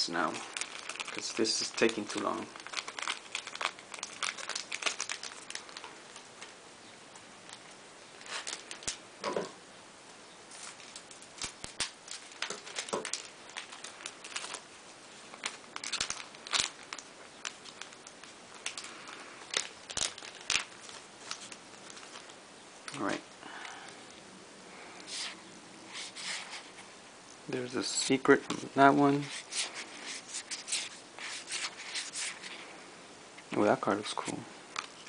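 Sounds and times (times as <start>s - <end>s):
wrappers crinkling and tearing: 0.1s - 6.3s, 7.4s - 9.0s, 10.5s - 23.1s, 28.9s - 32.6s
cards being handled: 28.5s - 32.6s.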